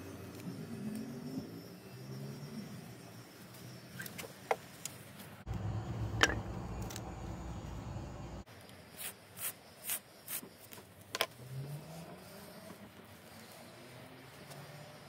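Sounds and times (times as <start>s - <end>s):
low rumble: 5.5s - 8.4s.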